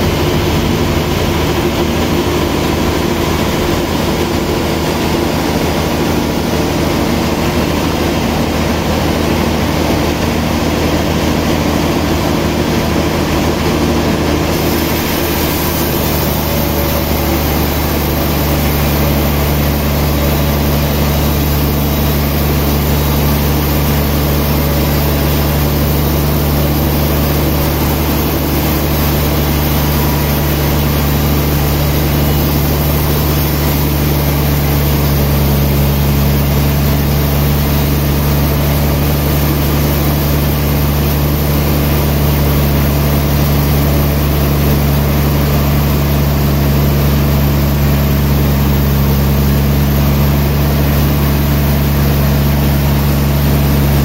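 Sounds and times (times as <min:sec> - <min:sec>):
deep motor hum: 0:00.0 - 0:54.0
band saw cutting log: 0:10.9 - 0:54.0.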